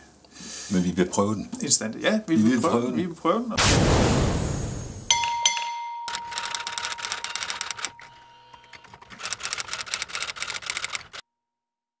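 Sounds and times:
typewriter key clacks: 0:06.1 - 0:11.2.

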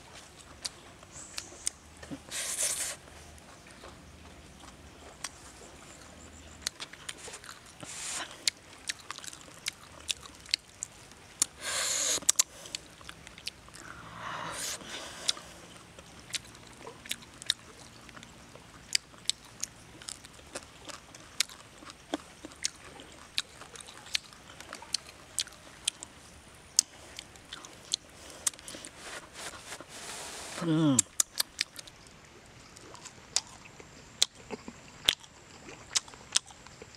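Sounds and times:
crisp chewing crunches: 0:00.1 - 0:14.0, 0:14.7 - 0:32.0, 0:32.6 - 0:36.9
mouth clicks: 0:10.6 - 0:12.8.

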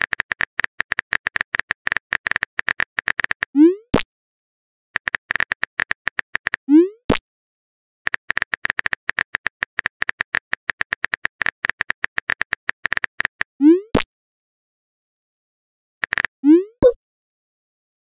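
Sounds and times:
phone keyboard typing clicks: 0:05.0 - 0:06.6, 0:08.1 - 0:13.5.

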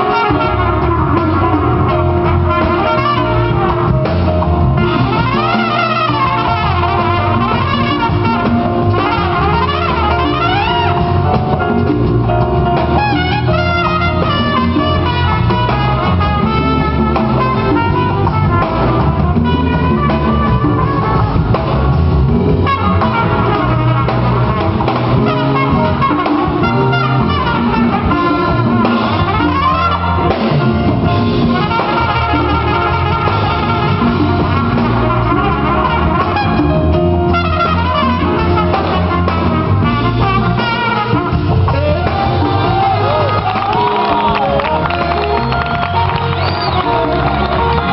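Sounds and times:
drum kit and rhythm section: 0:00.0 - 0:47.9
trumpet solo: 0:00.0 - 0:47.9.

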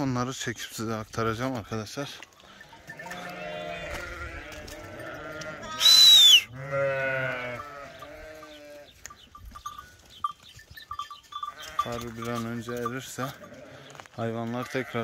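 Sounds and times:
sheep bleating: 0:02.4 - 0:09.0, 0:11.4 - 0:15.0.

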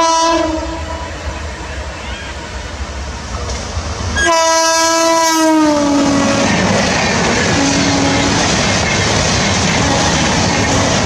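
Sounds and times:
locomotive horn: 0:00.0 - 0:01.4, 0:04.2 - 0:06.7, 0:07.4 - 0:08.6, 0:09.8 - 0:11.0
train coaches rushing past: 0:00.0 - 0:11.0.

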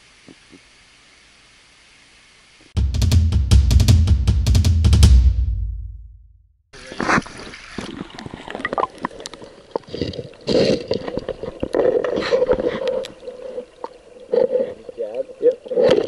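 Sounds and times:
bubbling: 0:06.8 - 0:16.0
underwater splashing and gurgling: 0:06.8 - 0:16.0.

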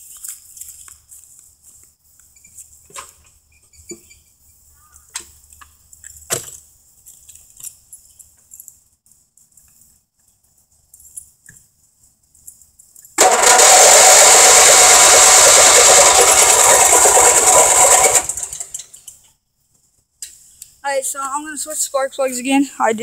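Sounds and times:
engine cranking by electric starter: 0:13.2 - 0:19.2.

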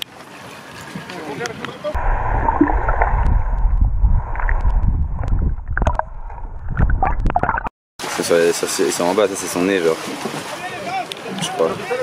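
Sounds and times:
underwater rumble of moving water: 0:02.0 - 0:07.7
underwater clicks and knocks: 0:04.4 - 0:07.7.

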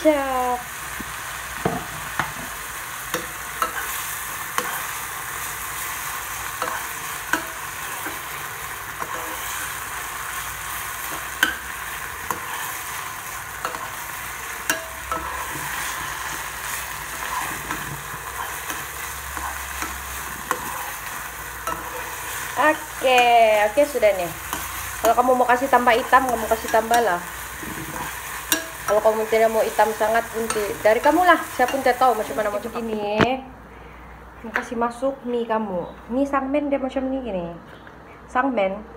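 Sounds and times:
meat sizzling in a frying pan: 0:00.0 - 0:33.1
metal spoon scraping a pan: 0:03.1 - 0:32.8.

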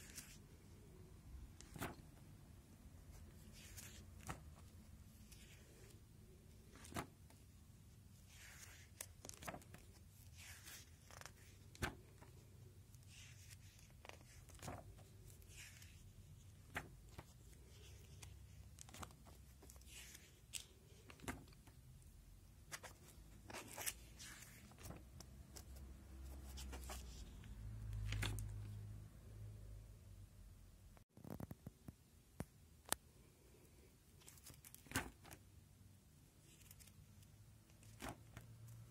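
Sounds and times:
plastic binder pages crinkling: 0:00.0 - 0:00.4, 0:01.6 - 0:02.3, 0:03.1 - 0:21.8, 0:22.6 - 0:28.7, 0:34.2 - 0:35.5, 0:36.4 - 0:38.9.

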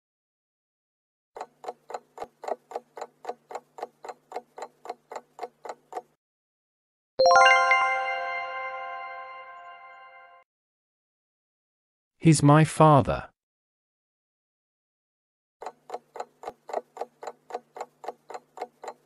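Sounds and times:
clock ticking: 0:01.4 - 0:06.2, 0:15.6 - 0:19.0
bright chime: 0:07.2 - 0:10.4.

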